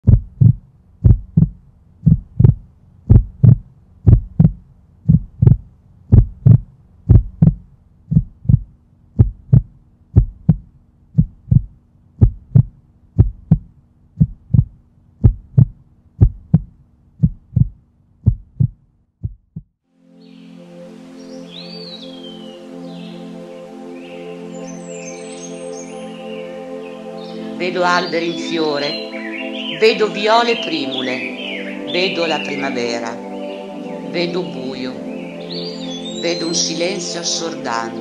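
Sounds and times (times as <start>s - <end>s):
low steady hum: 0.0s - 18.3s
heartbeat: 0.0s - 19.8s.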